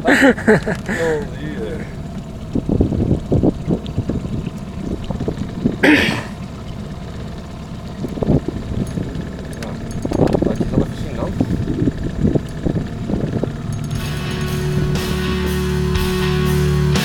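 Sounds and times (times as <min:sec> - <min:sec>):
low knocks of boat movement: 0:00.0 - 0:15.3
wind rumble: 0:00.0 - 0:16.2
person coughing: 0:05.8 - 0:06.4.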